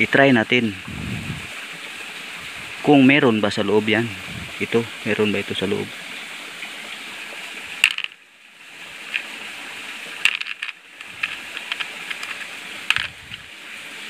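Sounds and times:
steady hiss: 0:00.0 - 0:14.0
stones and metal clicking: 0:07.8 - 0:08.2, 0:09.0 - 0:09.4, 0:10.2 - 0:13.5.

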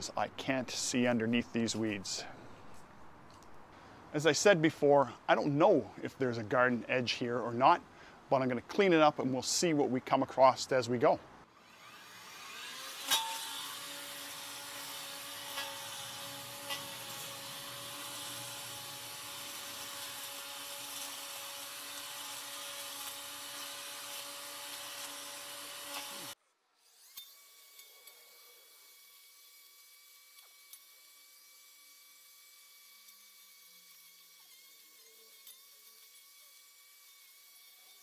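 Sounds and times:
battery trimmer cutting weeds: 0:11.6 - 0:38.0.

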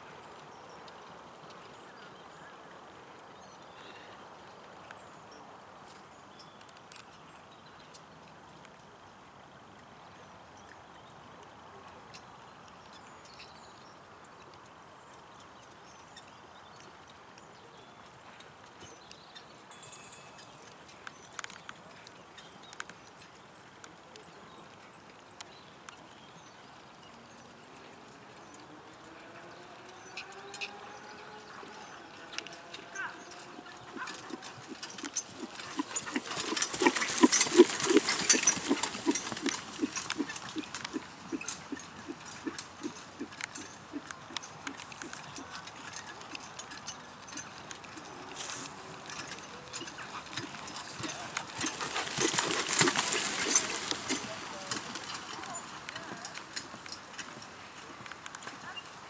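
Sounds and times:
faint hoofbeats on grass: 0:09.8 - 0:59.0
horse trotting: 0:14.3 - 0:59.0
carriage and harness rattling: 0:29.9 - 0:59.0.

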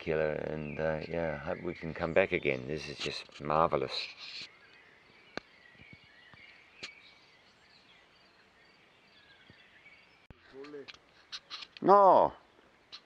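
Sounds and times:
bird chirps: 0:00.0 - 0:13.0
sharp clicks: 0:10.6 - 0:11.9.

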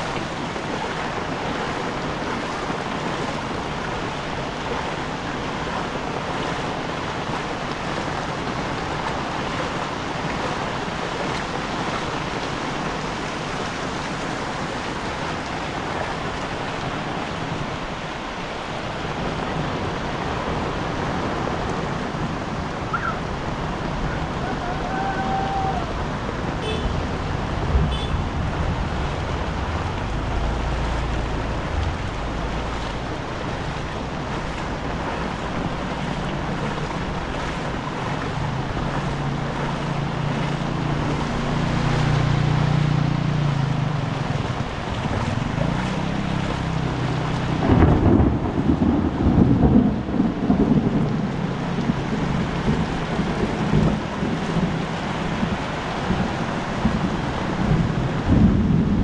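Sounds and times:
heavy rain pouring: 0:00.0 - 0:59.0
low rumble: 0:27.0 - 0:39.7.

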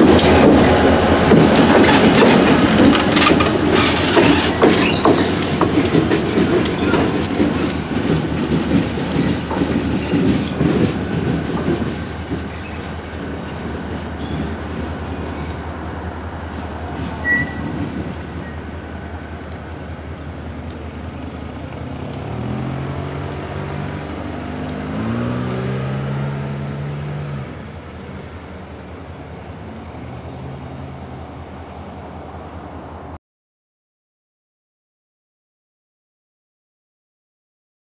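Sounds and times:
train wheel clatter: 0:00.0 - 0:22.6
diesel locomotive engine rumble: 0:00.0 - 0:33.2
wheel squeal: 0:02.8 - 0:07.7, 0:11.7 - 0:22.6.

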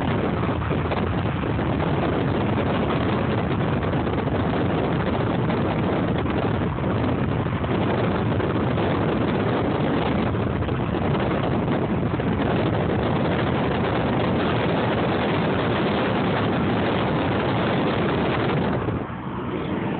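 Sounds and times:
wind and road noise inside car: 0:00.0 - 0:19.9.

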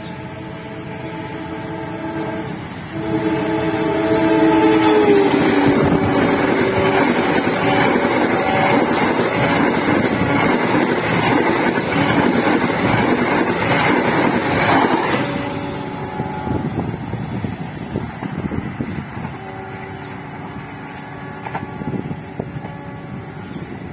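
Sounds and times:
locomotive horn: 0:00.0 - 0:10.6, 0:14.6 - 0:17.0, 0:18.4 - 0:23.9
train wheels clattering on rails: 0:04.6 - 0:15.6, 0:20.5 - 0:22.9.

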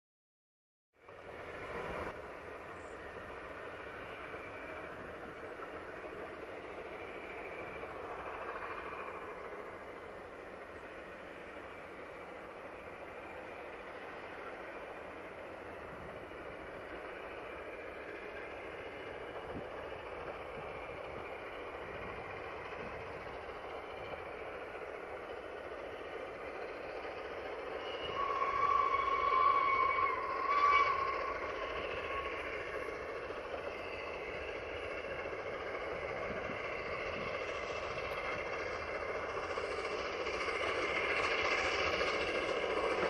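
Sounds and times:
steam locomotive exhaust: 0:01.0 - 0:43.0
steam whistle blasts: 0:27.7 - 0:32.6.

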